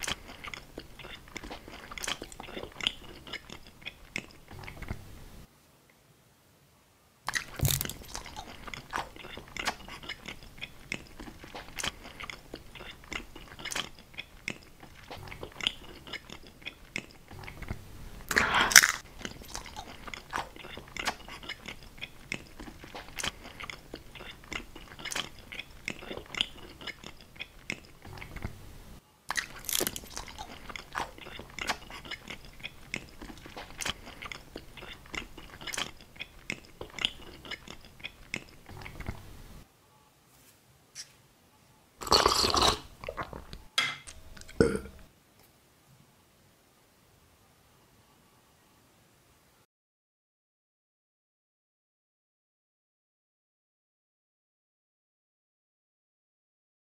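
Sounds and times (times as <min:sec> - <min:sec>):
crunching bite: 0:00.0 - 0:05.0, 0:07.3 - 0:28.6, 0:29.3 - 0:39.2
wet mouth clicks: 0:00.0 - 0:05.0, 0:07.3 - 0:28.5, 0:29.3 - 0:39.2
biting and chewing: 0:00.0 - 0:05.5, 0:07.3 - 0:39.4.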